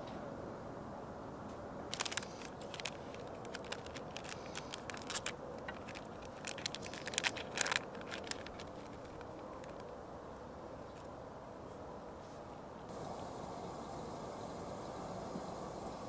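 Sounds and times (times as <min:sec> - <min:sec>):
sachet crinkling and tearing: 0:01.9 - 0:09.9.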